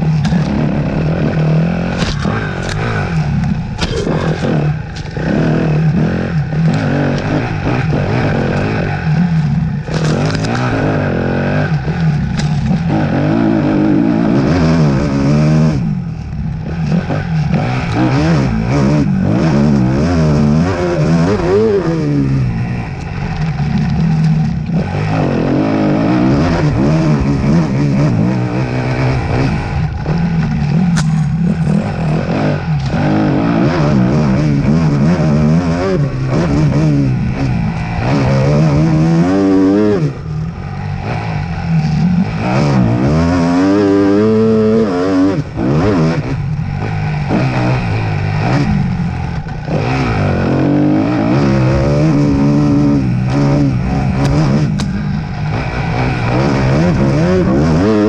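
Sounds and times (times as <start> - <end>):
rattling and scraping: 0.0 - 13.8, 19.0 - 44.3
off-road motorcycle engine revving: 0.0 - 58.0.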